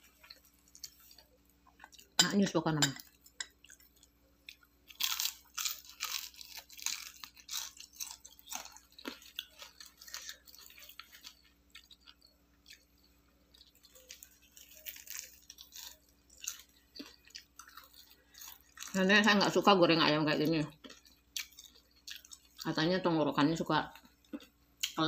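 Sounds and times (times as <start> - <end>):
chewing: 0.0 - 2.2, 3.0 - 19.0, 20.7 - 22.7
crunching fried chicken: 3.5 - 19.3, 20.8 - 22.7.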